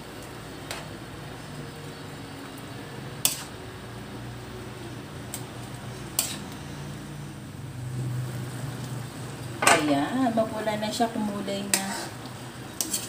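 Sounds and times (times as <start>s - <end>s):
metal spoon clinking on pan: 12.8s - 13.0s.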